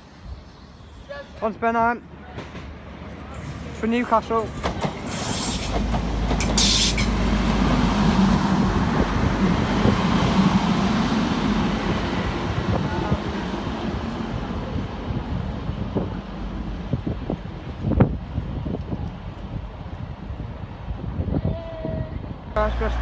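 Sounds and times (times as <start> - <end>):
diesel train engine rumble: 0.0 - 23.0
wind buffeting microphone: 4.6 - 22.6.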